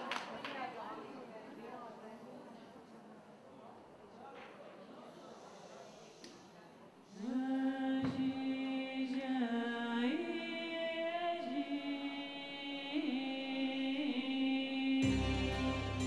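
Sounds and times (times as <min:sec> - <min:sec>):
solo voice chanting: 0:07.1 - 0:16.0.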